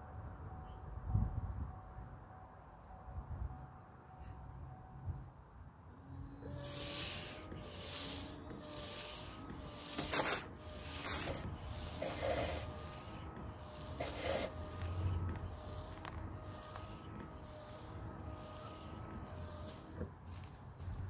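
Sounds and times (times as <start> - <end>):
wiper motor whine: 5.8 - 21.0
wiper blade swishing on wet glass: 6.4 - 20.1.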